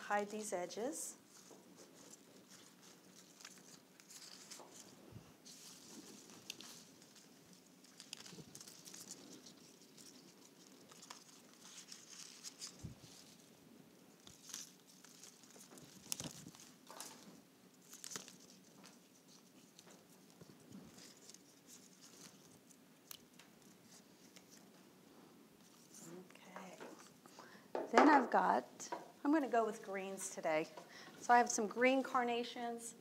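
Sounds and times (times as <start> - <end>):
leaves rustling and crinkling: 1.2 - 24.6, 25.6 - 27.2.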